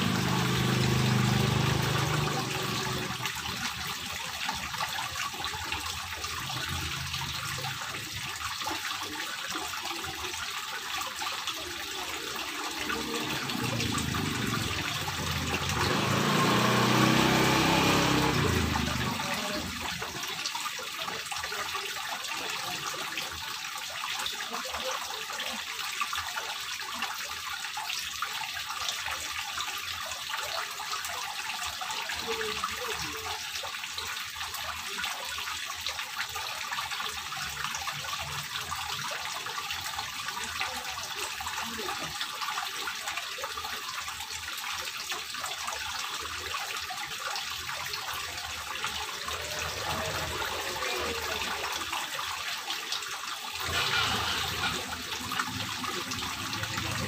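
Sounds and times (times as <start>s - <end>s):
fountain water trickling: 0.0s - 57.0s.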